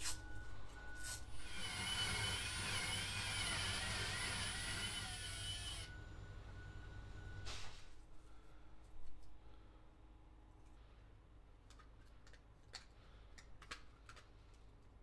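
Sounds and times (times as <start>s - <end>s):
drill hole saw cutting plastic: 1.4s - 5.9s.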